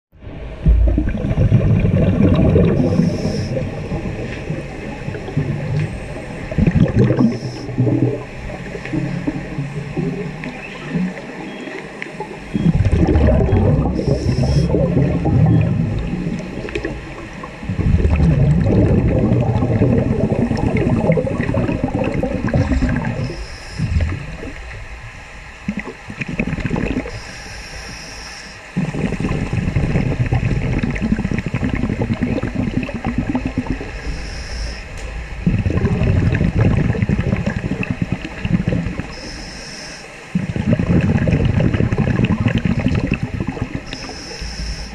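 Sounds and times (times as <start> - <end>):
underwater bubbling rumble: 0.1 - 44.9
regulator hissing: 2.8 - 3.6, 23.2 - 24.1, 27.1 - 28.7, 33.9 - 35.0, 39.1 - 40.1, 43.8 - 44.9.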